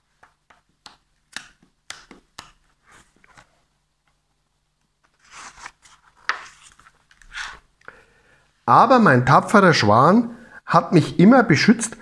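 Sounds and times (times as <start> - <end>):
book pages rustling: 0.1 - 4.2, 4.8 - 7.7.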